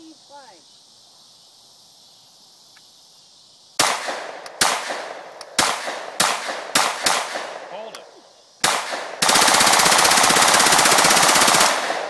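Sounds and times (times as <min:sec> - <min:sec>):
insects hissing: 0:00.0 - 0:12.0
gunshots: 0:03.8 - 0:07.9, 0:08.6 - 0:12.0.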